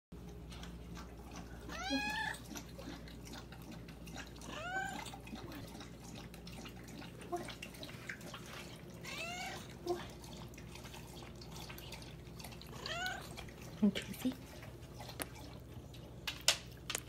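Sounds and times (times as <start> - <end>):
cat meowing: 1.7 - 2.4, 4.5 - 5.0, 12.8 - 13.3.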